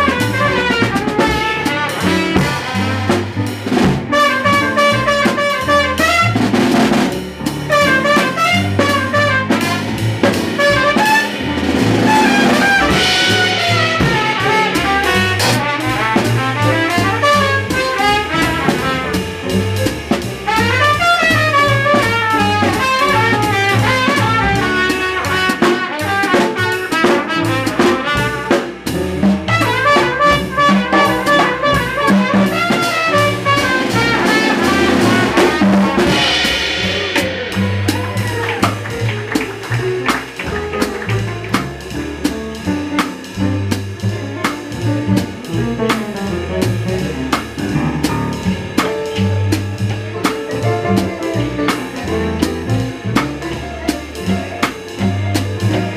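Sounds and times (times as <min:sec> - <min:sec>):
trumpet: 0:00.0 - 0:06.9, 0:07.7 - 0:41.6
piano: 0:00.0 - 0:55.9
walking double bass: 0:00.0 - 0:55.9
cymbal crash: 0:11.3 - 0:15.6, 0:35.0 - 0:38.5.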